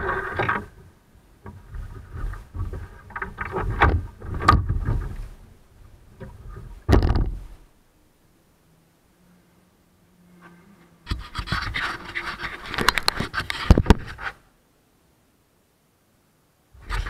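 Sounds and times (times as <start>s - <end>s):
sharp knocks on camera: 6.9s - 7.4s
camera handling scraping and rustling: 11.1s - 14.4s.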